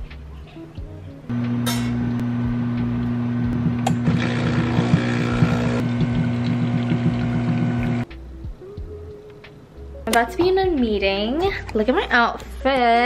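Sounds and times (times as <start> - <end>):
espresso machine pump humming: 1.3 - 8.0.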